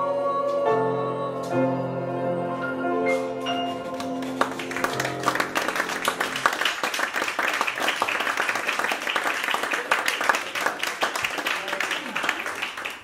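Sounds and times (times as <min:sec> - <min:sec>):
vocal quartet singing: 0:00.0 - 0:03.4
audience applause: 0:03.9 - 0:13.0.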